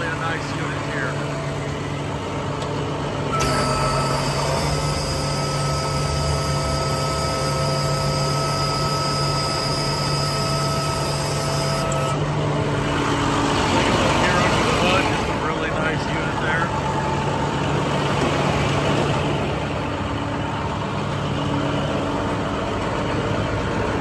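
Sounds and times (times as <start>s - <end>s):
diesel engine idling: 0.0s - 24.0s
high whine: 3.3s - 18.0s.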